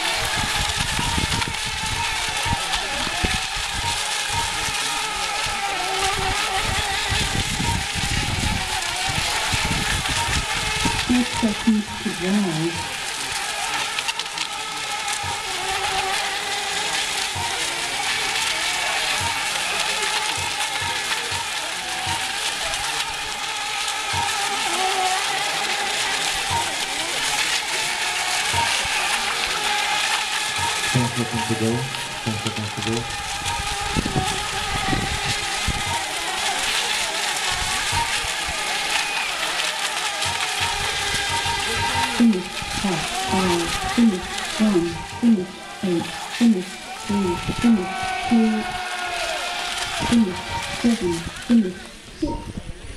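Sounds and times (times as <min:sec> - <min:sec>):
wind rumble on microphone: 0:00.0 - 0:13.2, 0:30.5 - 0:39.0, 0:40.2 - 0:48.9, 0:49.8 - 0:52.9
hiss: 0:00.0 - 0:51.9
electric boat motors whining: 0:00.0 - 0:52.9.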